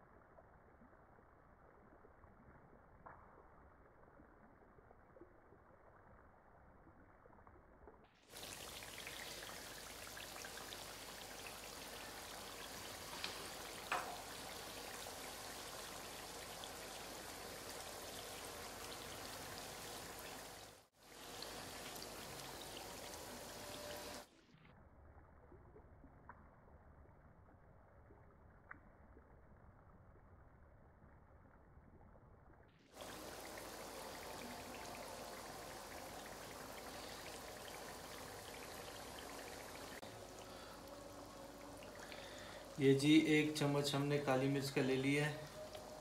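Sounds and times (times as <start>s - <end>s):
chicken sizzling in oil: 8.3s - 24.3s, 32.9s - 46.0s.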